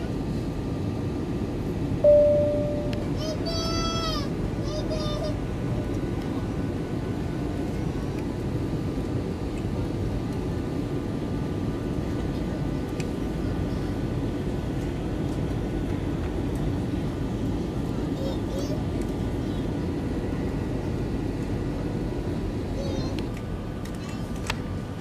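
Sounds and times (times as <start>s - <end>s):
jet cabin engine rumble: 0.0s - 25.0s
faint steady tones: 2.0s - 3.5s.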